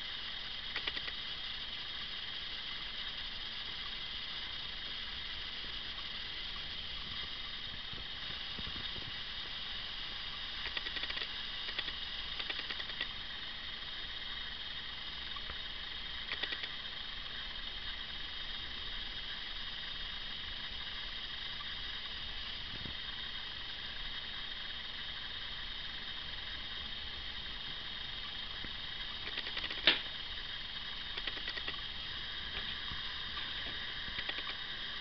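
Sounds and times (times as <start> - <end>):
microphone hiss: 0.0 - 35.0
faint crackles: 31.1 - 35.0.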